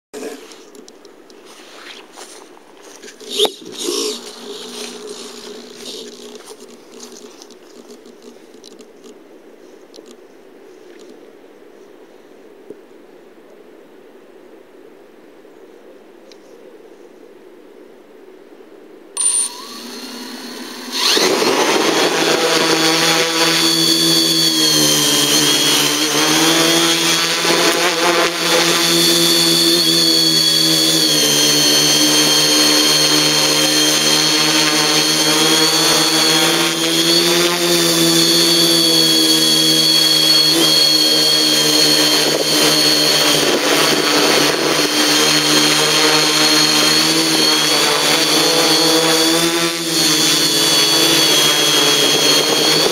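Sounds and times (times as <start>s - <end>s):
quadcopter motors whining: 2.1s - 8.8s, 19.2s - 52.9s
short beep: 19.2s - 19.7s.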